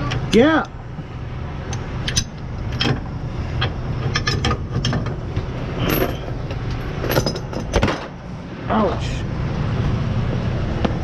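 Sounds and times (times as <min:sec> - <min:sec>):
metallic clinks and knocks: 0:05.8 - 0:08.1.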